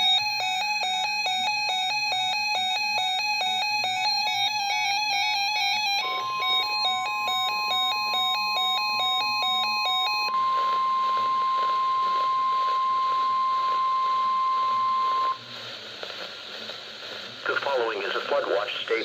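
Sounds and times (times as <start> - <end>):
rapid alarm beeps: 0.0 - 15.4
steady warning alarm tone: 0.0 - 15.5
radio static hiss: 10.4 - 19.0.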